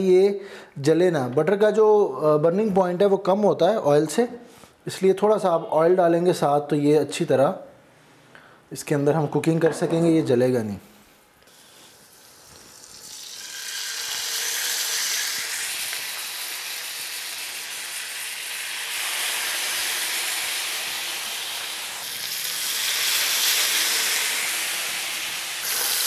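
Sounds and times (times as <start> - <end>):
fish sizzling in a frying pan: 11.5 - 26.0.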